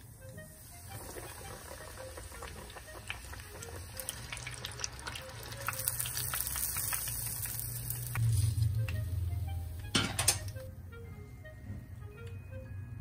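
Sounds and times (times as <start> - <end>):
fish deep-frying in oil: 0.8 - 8.8.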